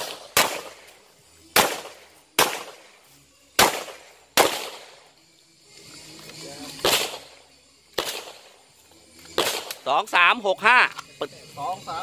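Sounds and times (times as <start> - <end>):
pistol shots with echo: 0.0 - 5.0, 6.8 - 8.6, 9.4 - 9.9.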